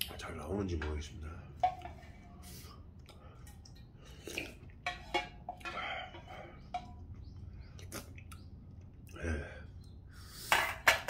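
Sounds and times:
slurping and chewing noodles: 0:04.1 - 0:04.8.

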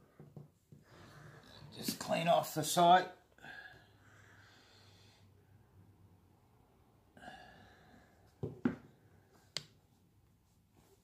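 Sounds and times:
quiet breathing: 0:00.0 - 0:01.8, 0:03.3 - 0:06.2, 0:07.0 - 0:08.4.

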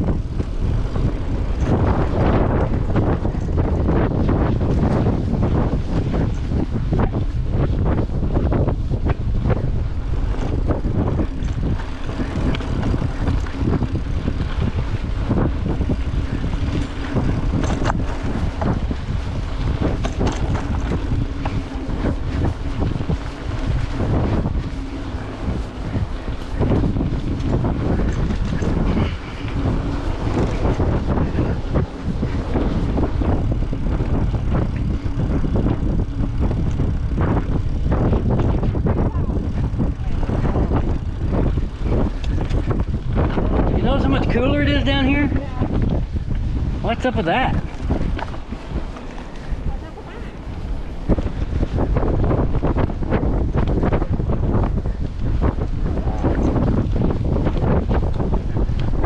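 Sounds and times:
low rumble: 0:00.0 - 0:59.0
wind buffeting microphone: 0:00.0 - 0:59.0
knocks and rattles: 0:10.3 - 0:25.3.

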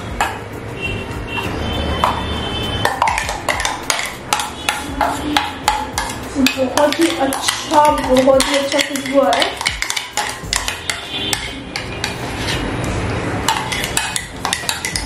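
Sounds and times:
metal spoon knocking on steel vessel: 0:02.8 - 0:12.3, 0:13.4 - 0:15.0.

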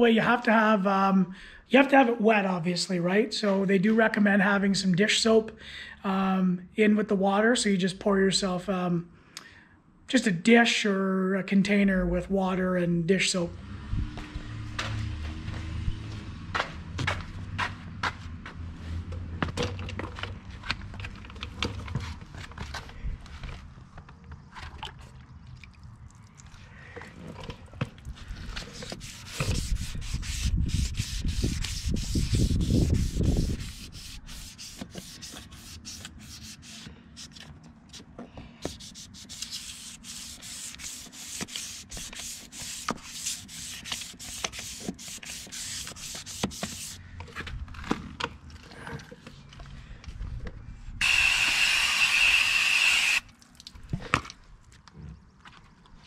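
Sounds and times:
sandpaper rubbing strokes: 0:28.4 - 0:37.4, 0:38.6 - 0:47.0
hose spray nozzle hissing: 0:51.0 - 0:53.2.

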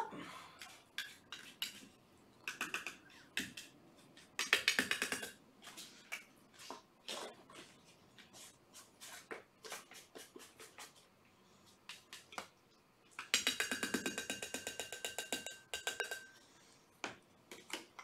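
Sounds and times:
kittens playing with light clicks: 0:00.6 - 0:05.4.

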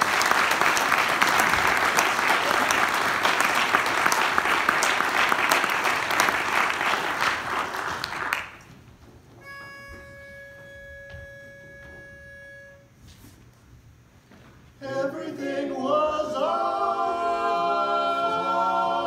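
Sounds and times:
audience applauding: 0:00.0 - 0:08.7
pitch pipe note: 0:09.4 - 0:13.2.

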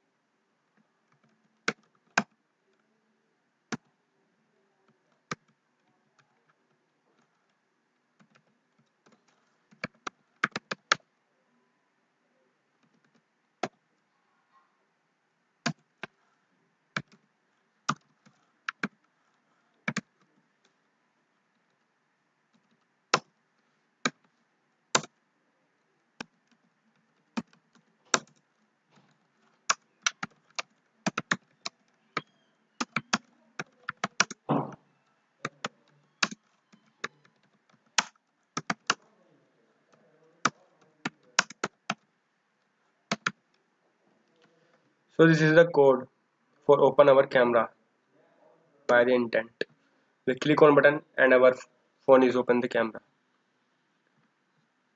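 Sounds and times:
typing on computer keyboard: 0:01.1 - 0:02.4, 0:08.2 - 0:11.0, 0:17.9 - 0:19.0, 0:19.8 - 0:20.3, 0:25.0 - 0:25.2, 0:29.0 - 0:34.5, 0:35.4 - 0:39.1, 0:40.4 - 0:42.1, 0:43.1 - 0:43.4.

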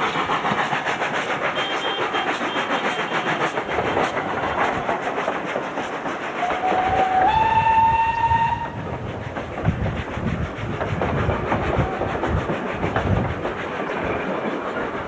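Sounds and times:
steam whistle blast: 0:01.5 - 0:03.3, 0:06.4 - 0:08.8.

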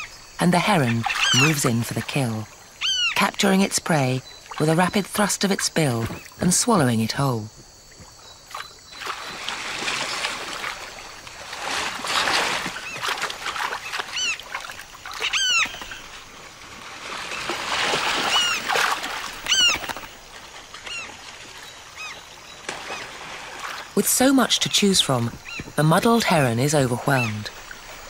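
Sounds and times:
terns calling: 0:00.0 - 0:28.0
fish splashing in shallow water: 0:07.6 - 0:28.0.

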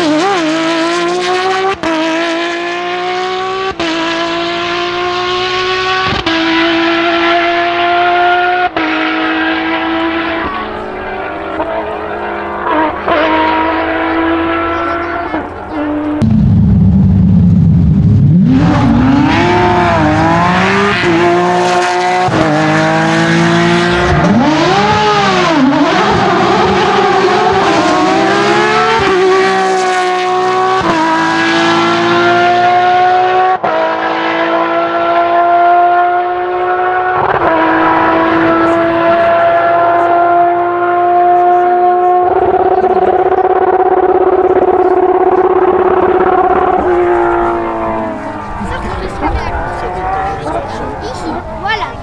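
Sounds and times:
rally car engines revving: 0:00.0 - 0:52.0.

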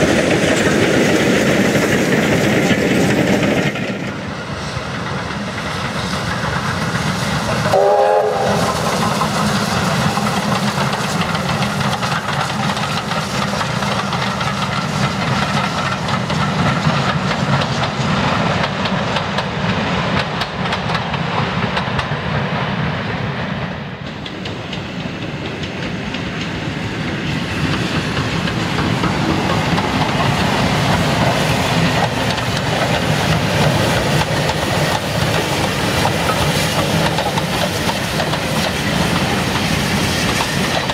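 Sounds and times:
train wheels clattering over rails: 0:00.0 - 0:40.9
steam locomotive whistle: 0:07.6 - 0:09.1.

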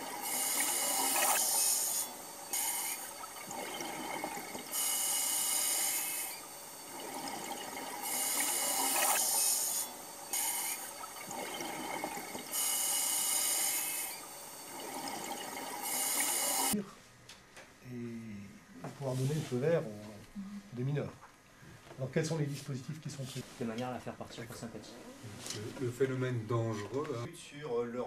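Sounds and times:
rushing bubbles: 0:03.0 - 0:04.8
regulator hiss on inhalation: 0:12.5 - 0:14.3.

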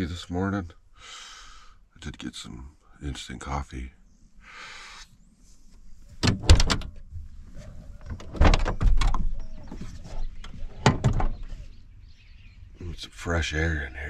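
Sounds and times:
van doors unlatching clicks and clunks: 0:06.2 - 0:07.3, 0:07.9 - 0:11.5.

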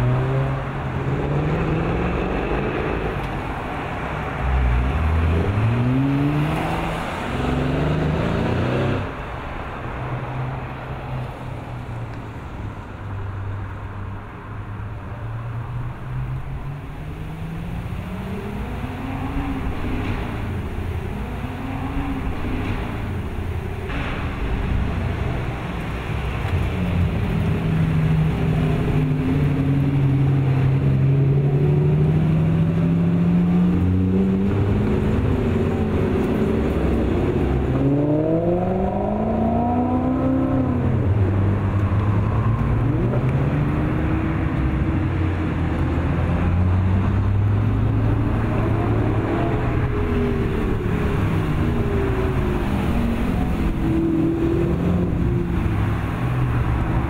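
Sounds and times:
sports cars passing by: 0:00.0 - 0:57.0
engine revving: 0:04.4 - 0:09.2, 0:16.9 - 0:57.0.

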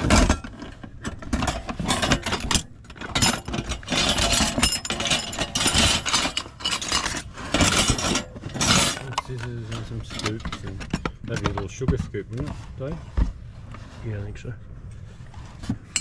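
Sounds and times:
metal objects clinking in a box: 0:00.0 - 0:11.4.

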